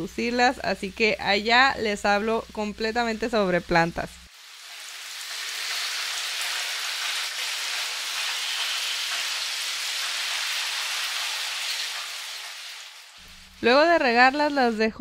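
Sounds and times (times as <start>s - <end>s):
shower water spraying: 4.3s - 14.9s.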